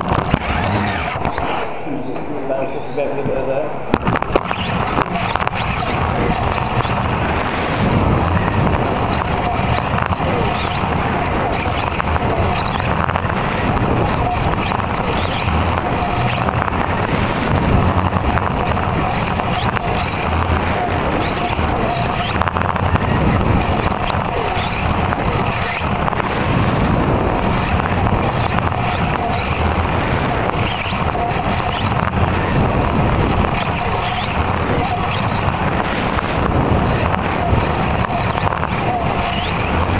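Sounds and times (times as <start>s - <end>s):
rc car motor whine: 0.0s - 39.9s
chassis rumbling on carpet: 3.9s - 39.9s.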